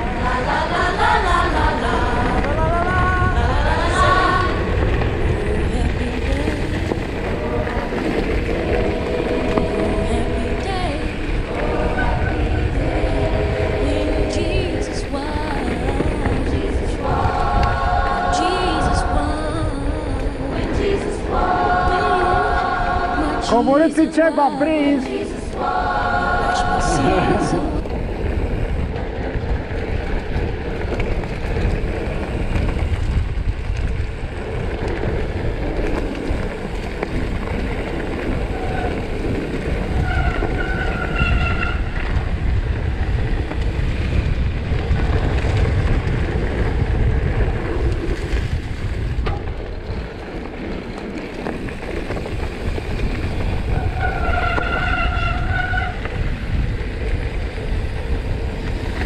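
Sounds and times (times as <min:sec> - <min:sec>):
mountain bike rumbling and rattling: 0:00.0 - 0:59.0
wind buffeting microphone: 0:00.0 - 0:59.0
brake squeal: 0:38.3 - 0:42.1, 0:51.5 - 0:56.2.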